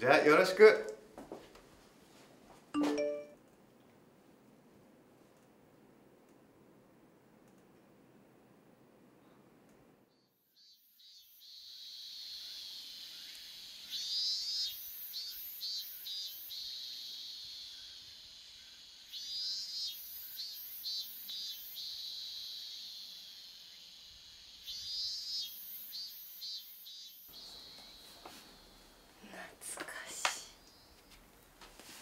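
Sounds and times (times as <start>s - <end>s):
cicadas singing: 10.1s - 31.2s.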